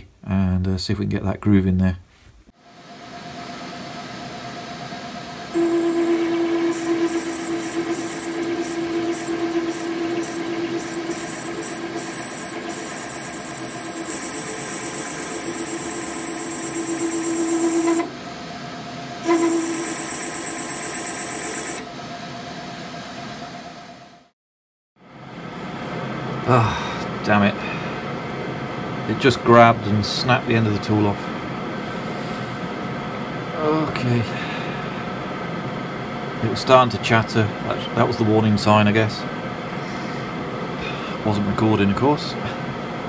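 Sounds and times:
metal lathe running: 0:03.8 - 0:22.2
lathe tool squealing: 0:05.5 - 0:18.4, 0:19.0 - 0:21.9.

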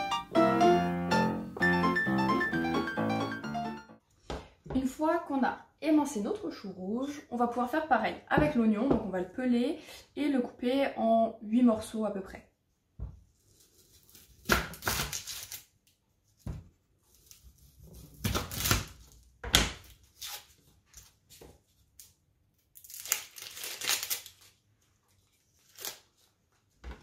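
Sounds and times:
onion skin crackling and tearing: 0:13.4 - 0:16.0, 0:17.1 - 0:21.2, 0:21.9 - 0:24.7, 0:25.4 - 0:26.4.

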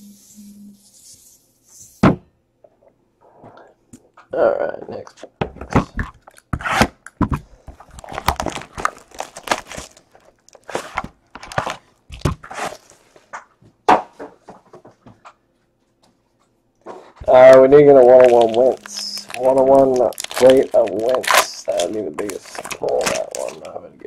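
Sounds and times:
shrink wrap ripping and crinkling: 0:07.8 - 0:13.1, 0:17.2 - 0:23.8.

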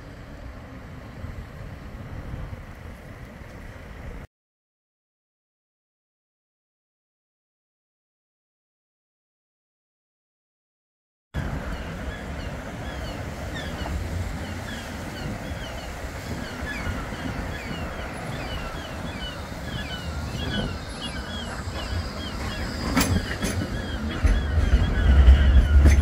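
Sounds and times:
tram rumbling on track: 0:00.0 - 0:04.3, 0:11.4 - 0:26.0
wind buffeting microphone: 0:00.9 - 0:04.3, 0:11.4 - 0:26.0
tram wheel clack: 0:16.2 - 0:26.0.

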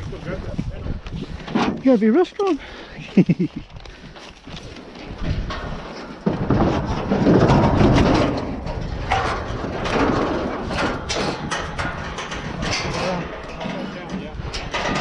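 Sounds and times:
steel trailer rattling and knocking: 0:04.9 - 0:15.0.

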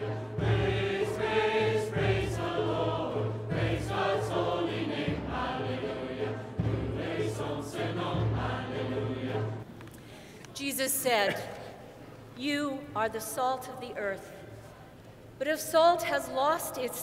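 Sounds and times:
instrumental accompaniment: 0:00.0 - 0:09.6
choir and congregation singing hymn: 0:00.0 - 0:09.7.

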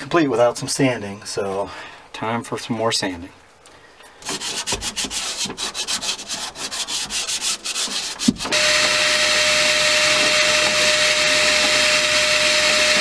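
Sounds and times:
hand sanding fiberglass: 0:04.2 - 0:13.0
shop vacuum running with whine: 0:08.5 - 0:13.0.

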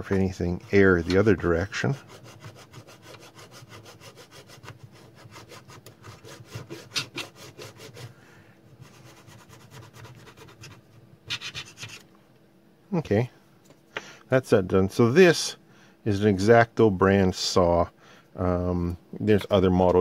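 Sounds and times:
razor saw cutting plastic: 0:00.7 - 0:08.1.

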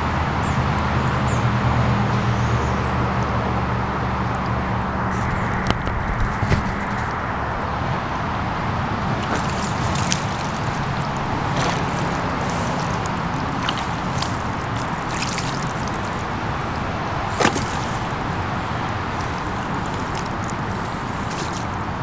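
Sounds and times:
steady rushing background noise: 0:02.9 - 0:22.0
mud squelching and sloshing: 0:08.8 - 0:22.0
wet smacks: 0:09.2 - 0:16.2, 0:17.3 - 0:18.2.

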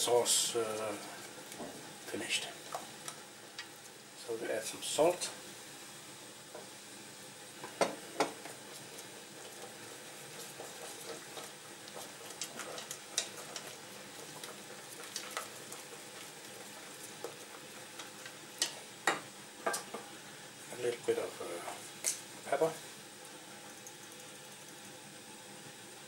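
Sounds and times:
faint steady hiss: 0:00.0 - 0:26.0
whisk stirring thick sauce: 0:08.3 - 0:18.9
whisk tapping metal pan: 0:10.4 - 0:19.9.

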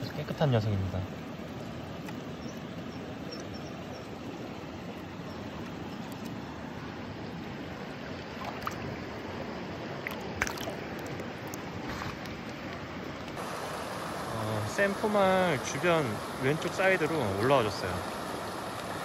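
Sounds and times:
stream water over stones: 0:00.0 - 0:19.0
light splashes: 0:08.2 - 0:09.1, 0:09.9 - 0:13.5.

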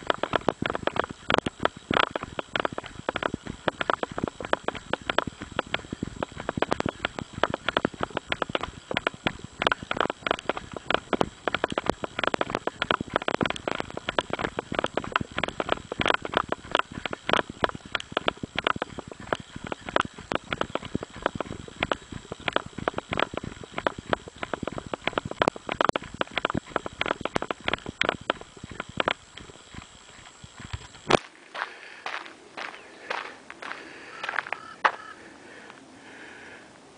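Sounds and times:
running footsteps on gravel: 0:00.0 - 0:36.2.

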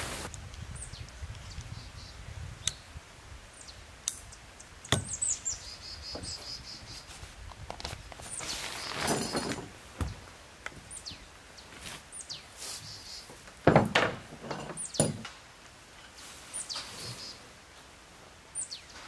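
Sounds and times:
tarp fabric rustling: 0:00.0 - 0:00.3, 0:07.0 - 0:10.1, 0:11.6 - 0:13.1.

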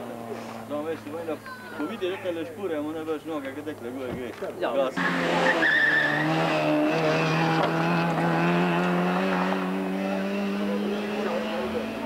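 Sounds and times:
rally car engine at high revs: 0:05.0 - 0:12.0.

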